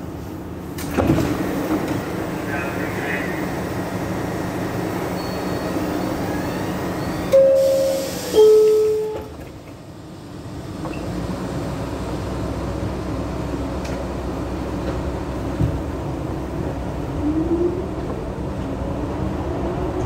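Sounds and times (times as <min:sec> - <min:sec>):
low train rumble: 0:00.0 - 0:20.0
train humming in station: 0:00.0 - 0:20.0
two-tone door chime: 0:07.3 - 0:09.3.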